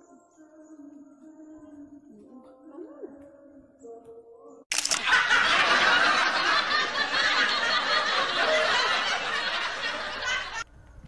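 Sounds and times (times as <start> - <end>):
canned laughter: 5.0 - 10.6.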